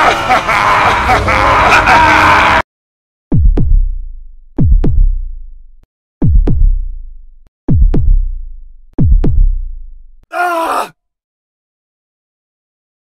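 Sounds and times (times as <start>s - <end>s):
heartbeat thuds: 3.3s - 5.4s, 6.2s - 7.0s, 7.7s - 9.6s.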